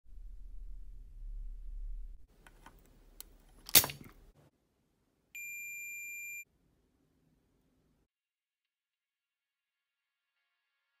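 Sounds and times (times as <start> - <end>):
desoldering pump snap: 3.2 - 4.1.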